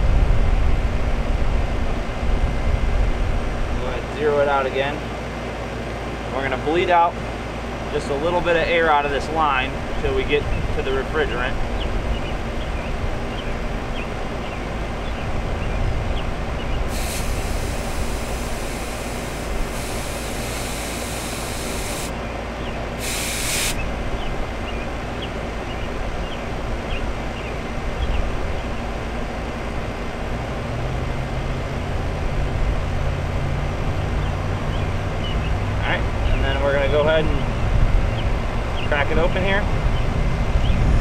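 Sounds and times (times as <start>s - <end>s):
air conditioner unit running: 0.0s - 33.0s
hose hissing gas: 16.9s - 22.2s, 23.0s - 23.8s.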